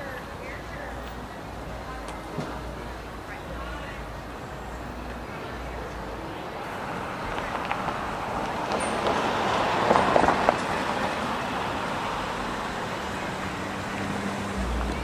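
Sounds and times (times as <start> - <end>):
traffic noise with low hum: 0.0 - 15.0
car driving past: 6.6 - 15.0.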